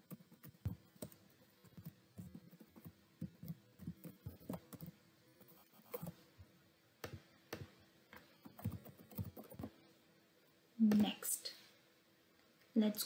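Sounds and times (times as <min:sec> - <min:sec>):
faint keyboard typing: 0:00.0 - 0:06.2, 0:07.0 - 0:09.8.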